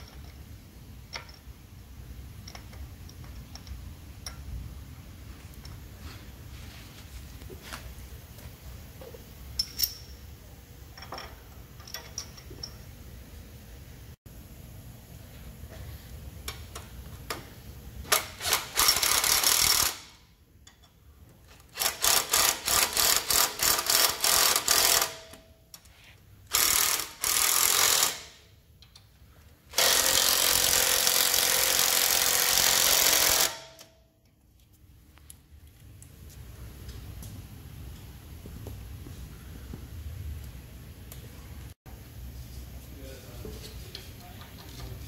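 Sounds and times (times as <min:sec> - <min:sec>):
cordless impact wrench hammering: 0:18.1 - 0:20.2, 0:21.7 - 0:25.4, 0:26.5 - 0:28.5, 0:29.7 - 0:34.0.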